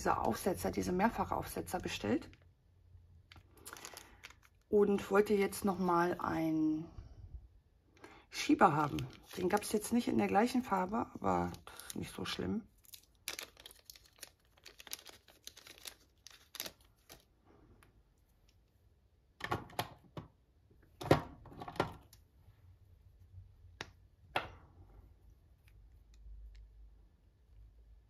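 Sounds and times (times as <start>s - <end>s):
plastic bag crinkling: 3.2s - 5.1s, 8.6s - 17.4s.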